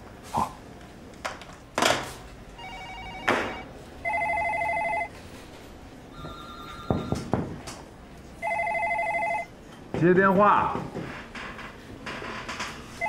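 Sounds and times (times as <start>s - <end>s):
telephone ringing: 2.6s - 5.2s, 6.1s - 7.3s, 8.4s - 9.6s.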